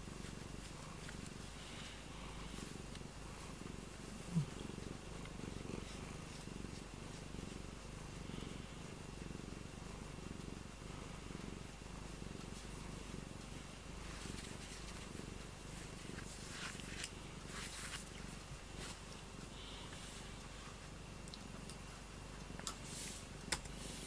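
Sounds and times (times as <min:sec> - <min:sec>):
cat purring: 0:00.0 - 0:24.0
scratchy rustles: 0:14.0 - 0:19.1.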